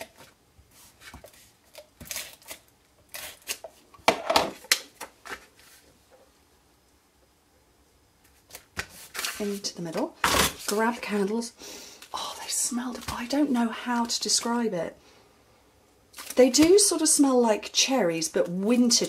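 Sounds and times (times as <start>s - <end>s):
paper rustling: 8.2s - 9.7s.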